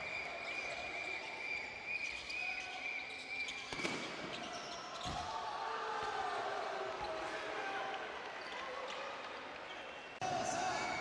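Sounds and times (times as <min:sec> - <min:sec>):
crowd noise: 0:00.0 - 0:11.0.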